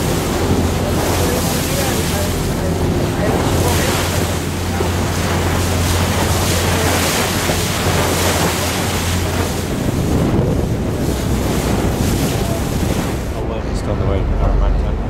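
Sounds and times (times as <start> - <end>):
low engine hum: 0.0 - 15.0
water rushing alongside boat: 0.0 - 15.0
wind buffeting microphone: 0.0 - 15.0.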